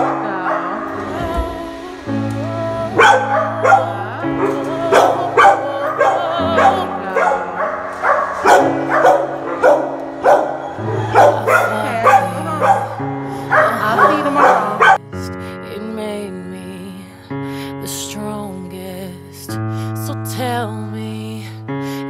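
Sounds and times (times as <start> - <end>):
background music with low notes: 0.0 - 22.0
dog barking and yipping: 3.0 - 15.0.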